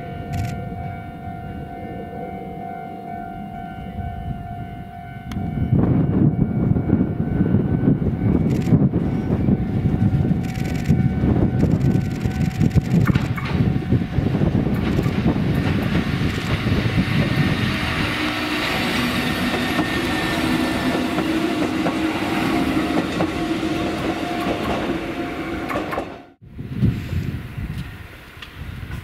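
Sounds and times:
low droning tone: 0.0s - 15.2s
electric train rumbling on rails: 0.0s - 29.0s.

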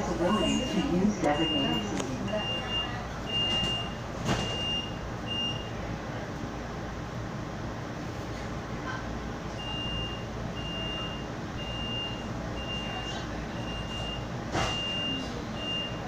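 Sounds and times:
streetcar interior hum: 0.0s - 16.0s
electronic warning beeps: 0.2s - 5.8s, 9.6s - 16.0s.

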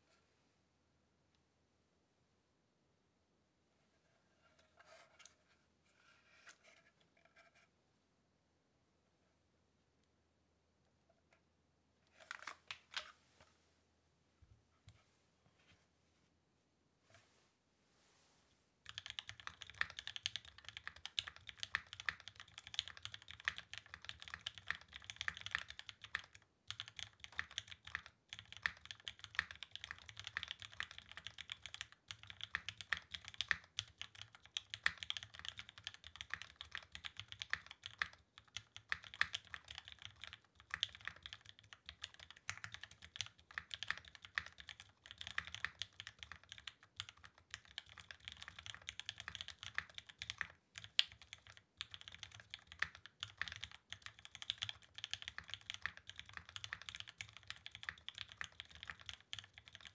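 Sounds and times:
fast typing on mechanical keyboard: 18.9s - 59.9s.

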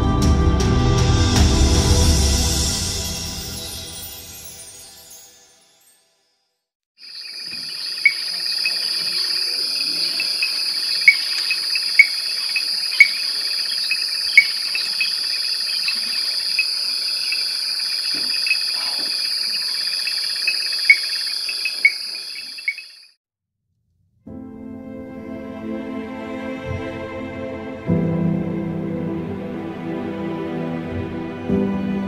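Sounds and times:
insect high-pitched trill: 7.0s - 23.2s
insect pulsing chirps: 7.0s - 23.2s
loud sharp insect chirps: 7.0s - 23.2s.

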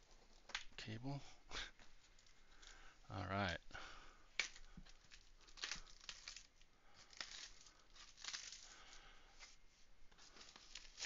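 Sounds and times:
cardboard rustling and crinkling: 4.5s - 11.0s.

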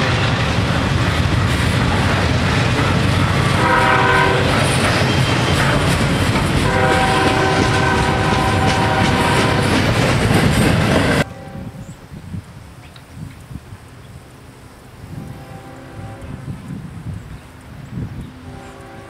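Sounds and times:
freight train rumbling and clacking: 0.0s - 12.0s
locomotive horn blasts: 2.7s - 5.9s, 6.6s - 9.8s, 11.2s - 11.9s, 15.1s - 16.6s, 18.4s - 19.0s.

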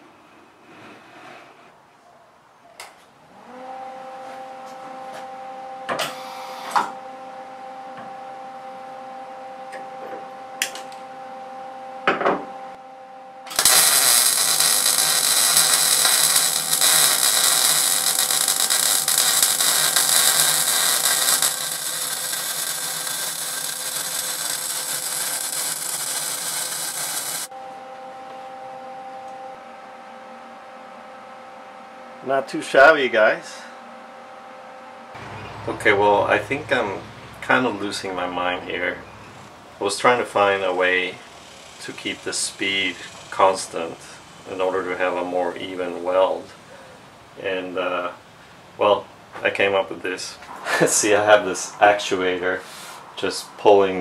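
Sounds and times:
steady hum: 6.9s - 54.0s
welding arc crackling hiss: 13.5s - 27.5s, 39.8s - 45.7s.

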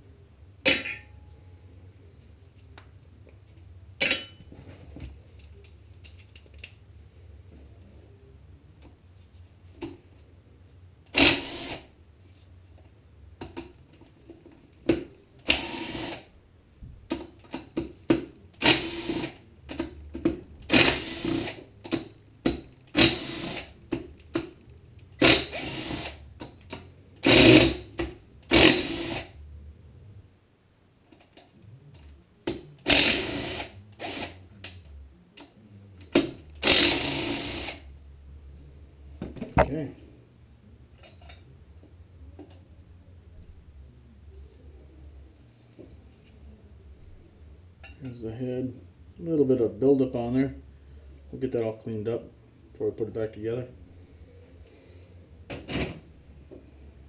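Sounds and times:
cordless power driver bursts: 11.1s - 11.9s, 15.5s - 16.3s, 18.6s - 19.4s, 20.7s - 21.6s, 22.9s - 23.7s, 25.2s - 26.2s, 27.2s - 27.9s, 28.5s - 29.3s, 32.9s - 34.4s, 36.6s - 37.8s.

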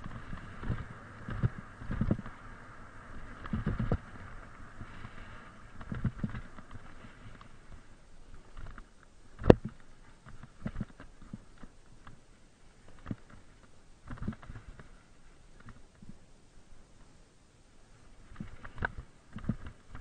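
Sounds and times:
mountain bike on dirt trail: 0.0s - 16.0s
light hiss: 0.0s - 20.0s.

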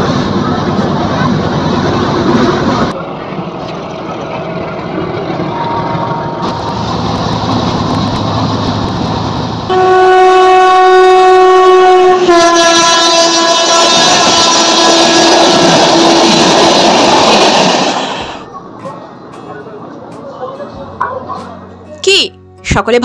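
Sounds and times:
train rumbling: 0.0s - 21.8s
locomotive horn blast: 9.7s - 16.2s.

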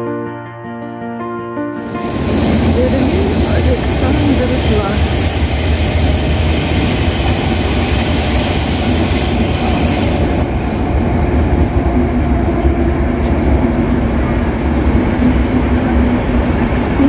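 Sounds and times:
high wheel squeal: 1.8s - 12.0s
train wheels rumbling on track: 1.8s - 17.0s.

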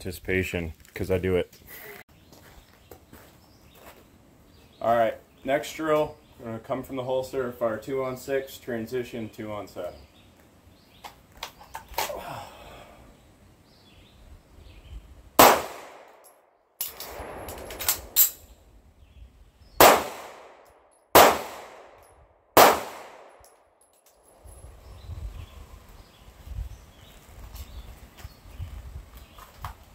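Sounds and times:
pistol shots with echo: 15.4s - 16.3s, 19.8s - 23.5s.

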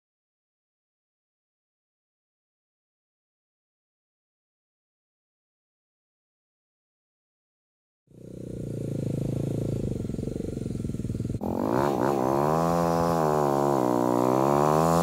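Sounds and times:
dirt bike engine revving: 8.1s - 15.0s
engine running steadily: 8.1s - 15.0s.

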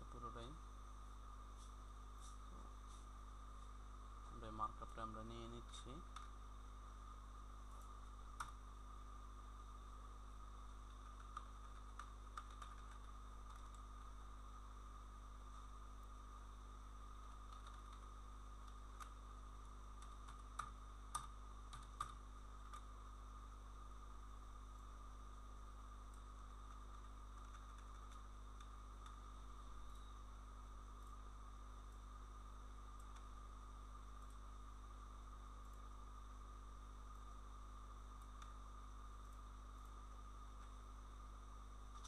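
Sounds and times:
electrical hum: 0.0s - 42.0s
keyboard and mouse clicks: 10.8s - 14.1s, 17.4s - 19.2s, 20.0s - 22.9s, 26.1s - 29.2s.

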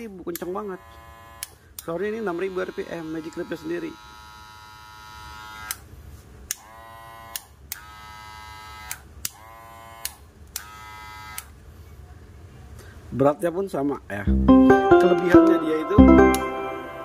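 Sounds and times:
hair clippers buzzing: 2.4s - 5.8s, 6.6s - 11.5s.

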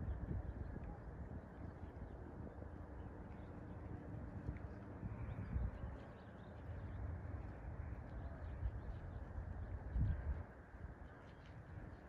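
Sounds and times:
wind buffeting microphone: 0.0s - 2.6s, 8.4s - 10.6s.

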